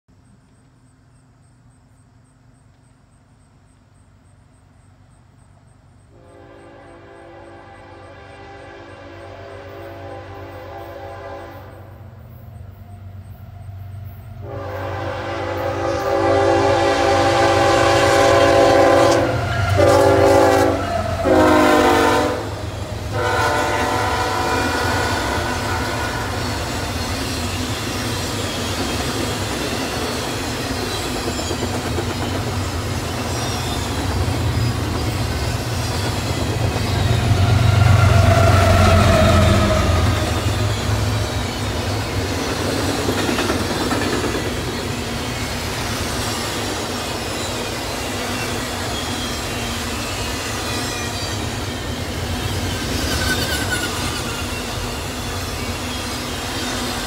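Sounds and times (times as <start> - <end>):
train air horn blasts: 6.1 - 12.0, 14.4 - 26.9, 37.2 - 41.3
diesel locomotive rumble: 12.0 - 47.0.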